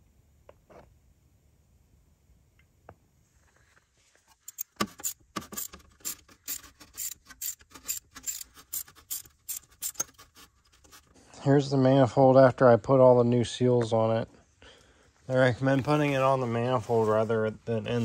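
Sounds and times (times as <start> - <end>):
ratchet wrench clicking: 4.4 - 10.2.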